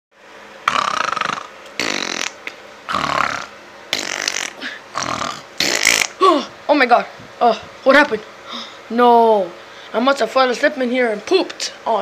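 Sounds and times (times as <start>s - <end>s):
fart noises: 0.6s - 6.2s.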